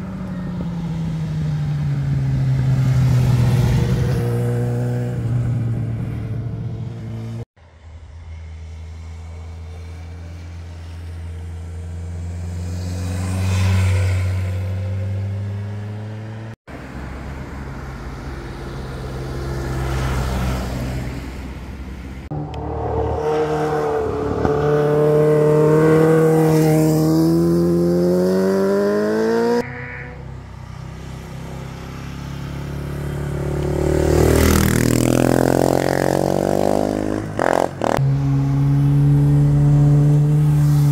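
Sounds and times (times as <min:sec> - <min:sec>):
motorcycle engines accelerating: 0:22.3 - 0:29.6, 0:31.0 - 0:40.9.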